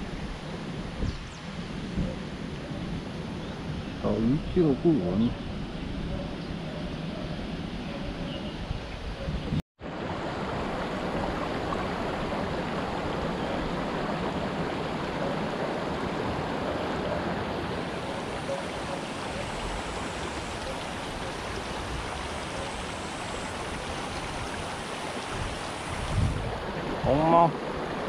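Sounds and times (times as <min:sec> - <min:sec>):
stream rushing over stones: 0:09.8 - 0:28.0.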